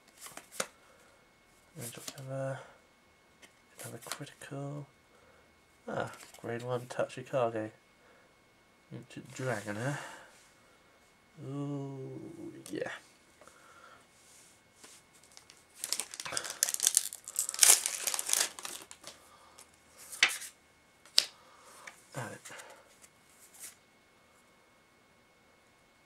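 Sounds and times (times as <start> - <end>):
foil wrapper tearing and crinkling: 15.2 - 19.2.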